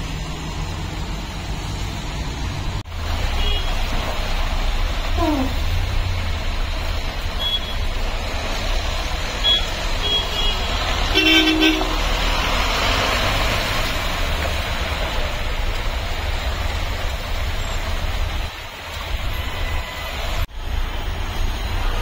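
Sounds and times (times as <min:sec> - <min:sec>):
engines rumbling: 0:00.0 - 0:22.0
tyres hissing through water: 0:01.4 - 0:20.5
car horn toot: 0:03.4 - 0:03.9, 0:07.4 - 0:07.8, 0:09.4 - 0:12.1.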